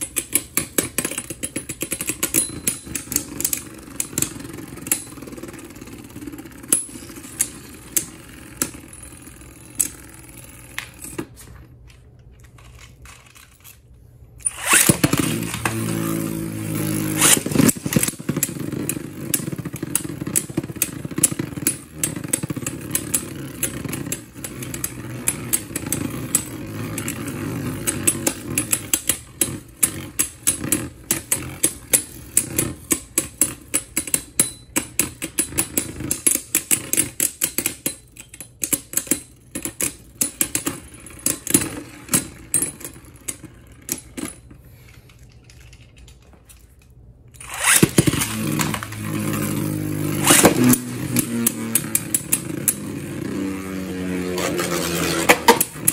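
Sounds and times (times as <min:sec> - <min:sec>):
spinning tops clacking together: 0:12.2 - 0:55.9
spinning tops whirring: 0:14.4 - 0:34.0, 0:47.3 - 0:55.9
top spinning up: 0:14.4 - 0:34.2, 0:47.3 - 0:55.9.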